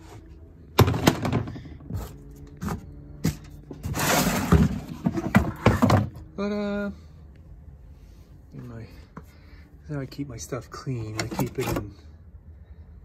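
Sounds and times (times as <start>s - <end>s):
scraping and rattling: 3.7s - 6.1s.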